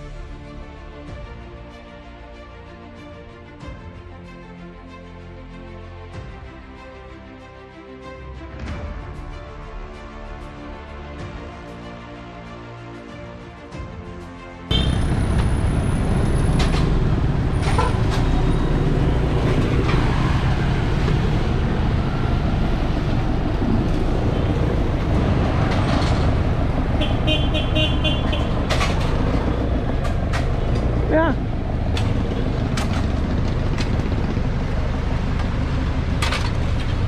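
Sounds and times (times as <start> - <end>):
street traffic rumble: 14.7 - 37.0.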